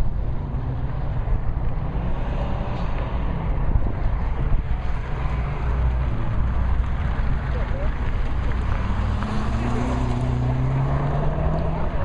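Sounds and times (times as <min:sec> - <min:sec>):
distant car engine: 0:00.9 - 0:12.0.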